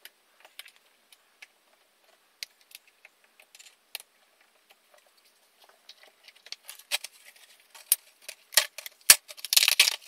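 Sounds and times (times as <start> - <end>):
plastic bag crinkling: 5.9 - 10.0.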